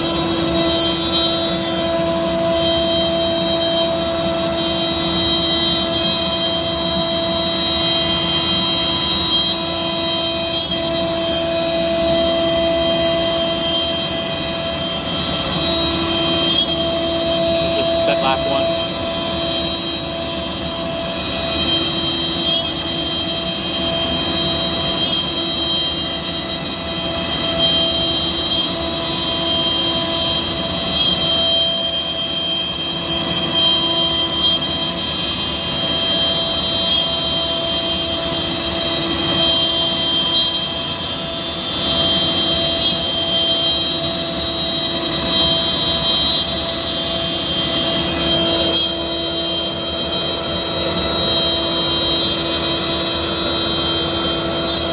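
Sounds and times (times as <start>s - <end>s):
router cutting wood: 0.0s - 23.4s, 25.1s - 25.8s, 42.4s - 54.9s
router spindle high whine: 0.0s - 54.9s.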